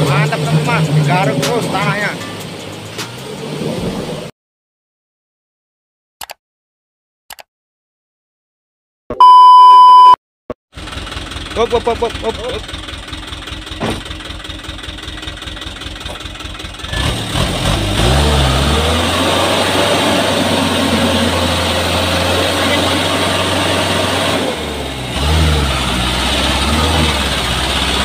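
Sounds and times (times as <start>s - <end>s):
diesel engine idling and revving: 0.0s - 4.3s, 10.7s - 28.0s.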